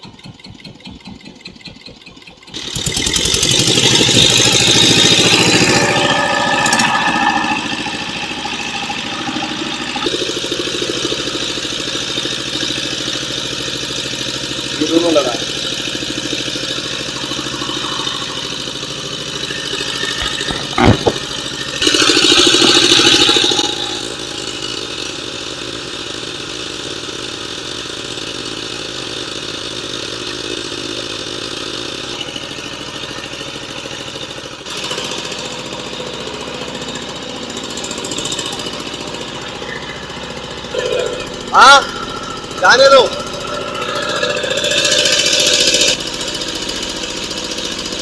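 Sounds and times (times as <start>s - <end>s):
boat engine running: 0.0s - 25.6s, 37.4s - 48.0s
rushing noise: 16.7s - 21.3s
sharp knock: 20.2s - 21.4s.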